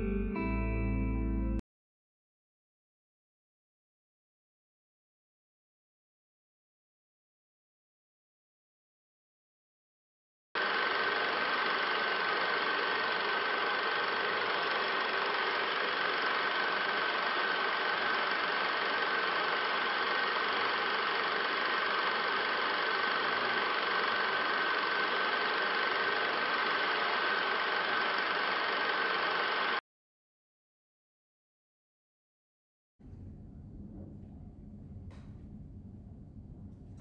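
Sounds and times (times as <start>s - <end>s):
mechanical drone with high whine: 10.6s - 29.8s, 33.0s - 37.0s.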